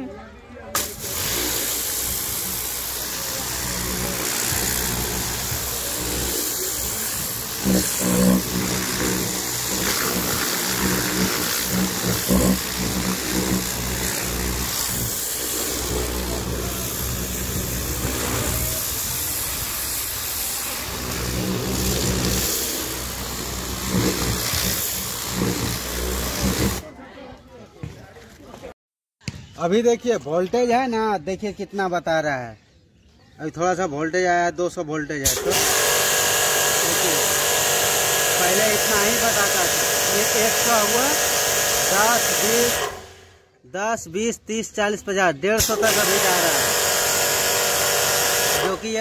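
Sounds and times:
pressure washer hiss: 0:00.8 - 0:26.8, 0:35.2 - 0:43.2, 0:45.6 - 0:49.0
pressure washer motor humming: 0:00.8 - 0:26.8, 0:35.2 - 0:43.2, 0:45.6 - 0:49.0.

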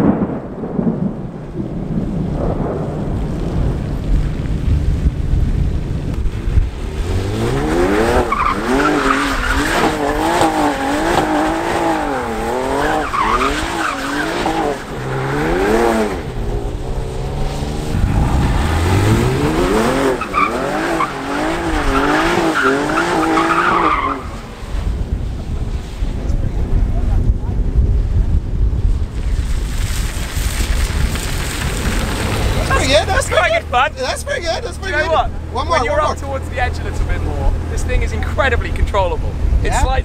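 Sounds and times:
tyres skidding on wet pavement: 0:01.4 - 0:27.0, 0:28.9 - 0:40.0
car engine revving hard: 0:06.8 - 0:24.4.

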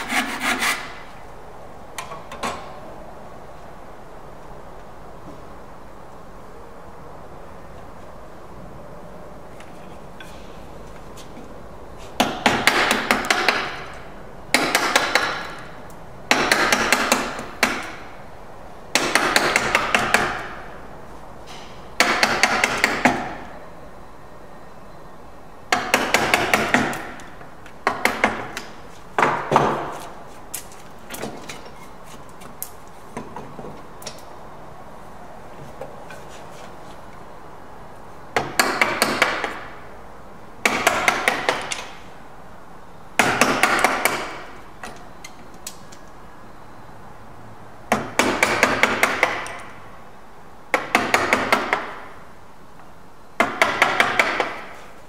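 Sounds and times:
mallet striking chisel into wood: 0:12.2 - 0:13.9, 0:14.5 - 0:15.6, 0:16.3 - 0:18.0, 0:18.9 - 0:20.6, 0:22.0 - 0:23.4, 0:25.7 - 0:27.2, 0:38.4 - 0:39.7, 0:40.6 - 0:41.8, 0:43.2 - 0:44.4, 0:47.9 - 0:49.6, 0:50.7 - 0:52.0, 0:53.4 - 0:54.7.

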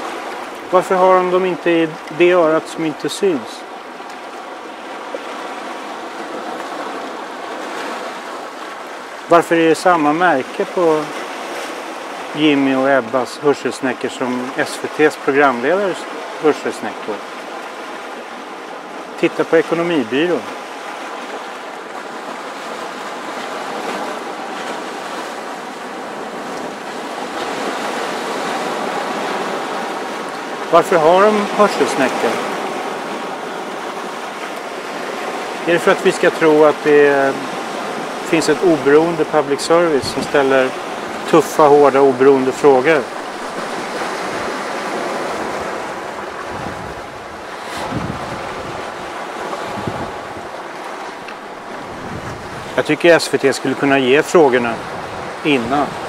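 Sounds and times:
surf breaking on rocky shore: 0:00.0 - 0:56.0
wind gusting on microphone: 0:39.9 - 0:41.3, 0:43.0 - 0:52.8, 0:54.7 - 0:56.0.

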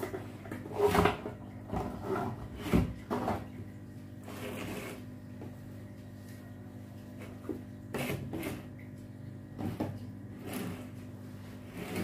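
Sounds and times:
faint steady hum: 0:00.0 - 0:12.0.

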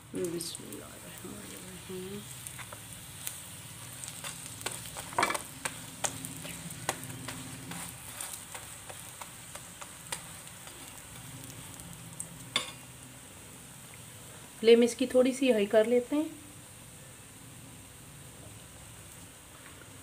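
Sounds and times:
flatbread sizzling in a pan: 0:00.0 - 0:20.0.

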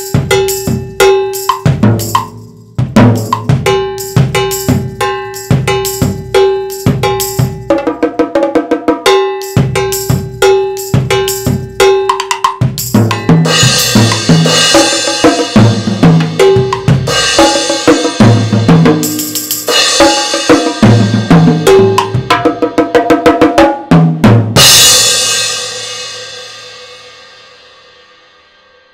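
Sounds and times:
drums played with sticks: 0:00.0 - 0:28.4
cymbal wash and crash: 0:24.6 - 0:28.9.

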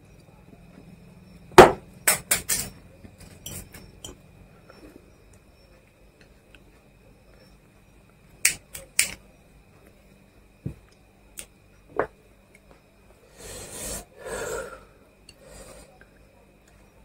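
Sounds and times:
breathy exhalations: 0:13.3 - 0:16.0.

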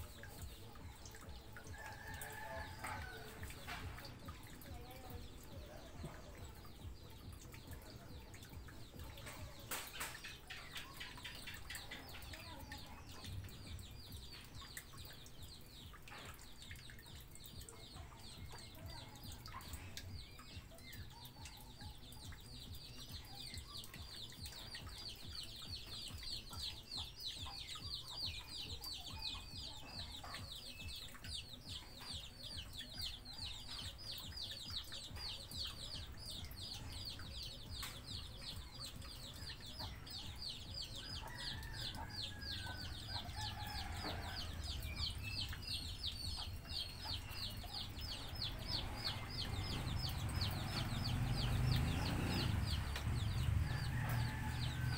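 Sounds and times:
birds chirping: 0:00.0 - 0:54.9.

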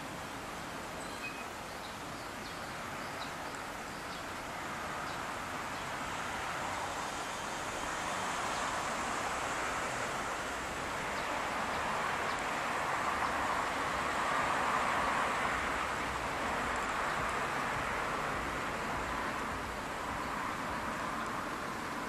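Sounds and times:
outdoor background hiss and rumble: 0:00.0 - 0:22.0.

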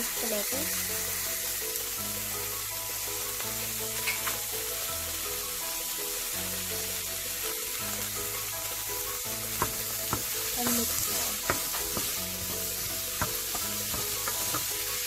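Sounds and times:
background music with held notes: 0:00.0 - 0:15.0
food sizzling in hot oil: 0:00.0 - 0:15.0
wooden spatula stirring: 0:09.3 - 0:15.0.

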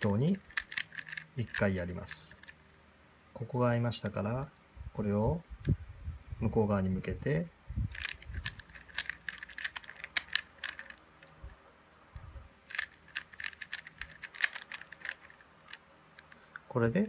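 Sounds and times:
puzzle cube clicking: 0:00.0 - 0:02.7, 0:07.9 - 0:11.6, 0:12.6 - 0:17.0.

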